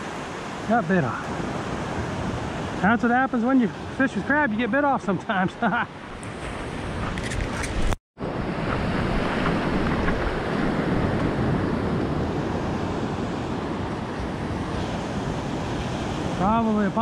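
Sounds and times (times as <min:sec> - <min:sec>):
waves breaking on sandy beach: 0:00.0 - 0:17.0
wind on microphone: 0:06.1 - 0:17.0.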